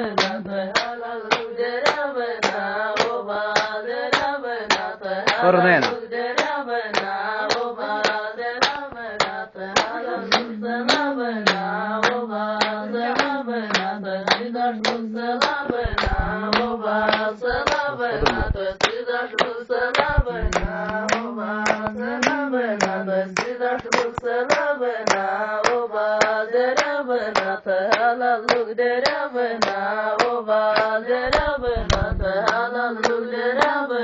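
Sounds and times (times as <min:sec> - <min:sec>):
person singing: 0:00.0 - 0:07.0, 0:08.6 - 0:34.0
rhythmic hand-clapping: 0:00.0 - 0:34.0
dull low thumps: 0:15.8 - 0:16.8, 0:17.5 - 0:18.8, 0:20.0 - 0:21.0, 0:31.3 - 0:32.4.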